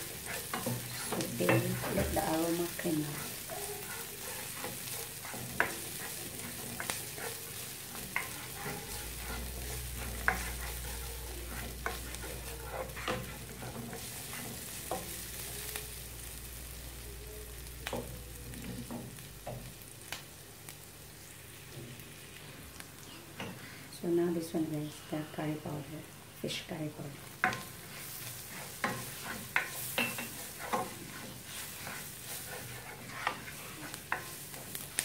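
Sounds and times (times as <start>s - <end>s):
spatula clicking and scraping: 0.0s - 15.7s, 27.4s - 35.0s
onion sizzling in hot oil: 0.0s - 25.0s, 25.6s - 35.0s.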